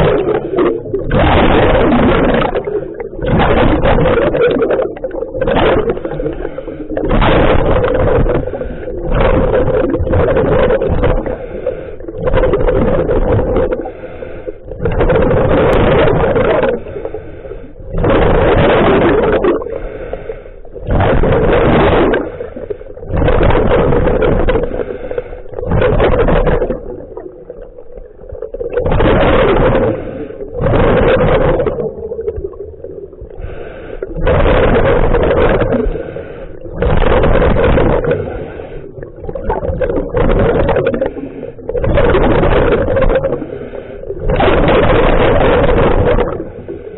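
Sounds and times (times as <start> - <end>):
rush of exhaled bubbles: 0.0 - 46.9
diver breathing through regulator: 4.8 - 12.5, 13.5 - 18.5, 19.3 - 21.5, 22.1 - 26.9, 29.4 - 31.4, 32.5 - 39.3, 40.6 - 42.1, 42.7 - 46.9.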